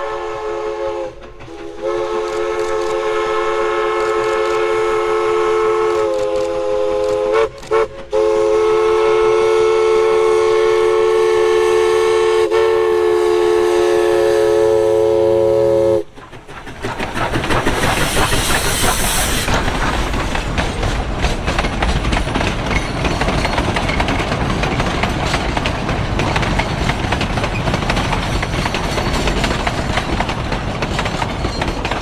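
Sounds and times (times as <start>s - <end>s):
steam locomotive whistle: 0.0s - 16.1s
low rumble of steam engine: 0.0s - 32.0s.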